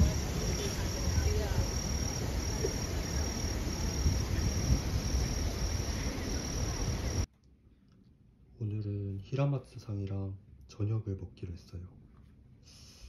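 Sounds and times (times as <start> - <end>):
cricket chirping: 0.0 - 7.3.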